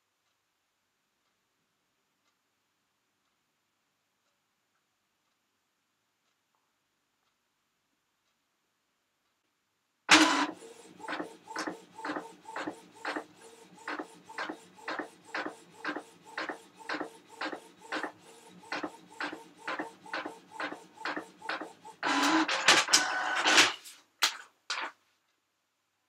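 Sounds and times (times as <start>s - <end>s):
printer mechanism noise: 10.1s - 23.9s
printer head swishing: 10.1s - 24.0s.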